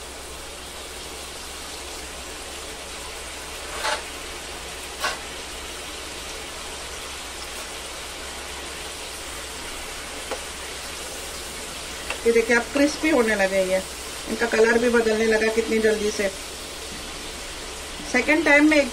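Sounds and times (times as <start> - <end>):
fries sizzling in hot oil: 0.0 - 18.9.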